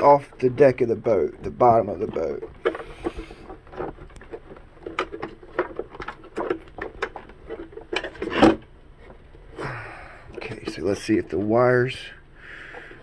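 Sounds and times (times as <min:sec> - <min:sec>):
hands handling electronics and wires: 0:00.0 - 0:09.6.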